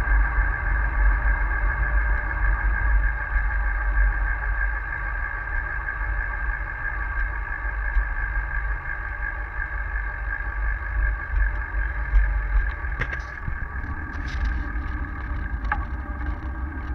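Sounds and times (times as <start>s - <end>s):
road rumble: 0.0s - 16.9s
steady whine: 0.0s - 16.9s
wind buffeting microphone: 10.7s - 16.9s.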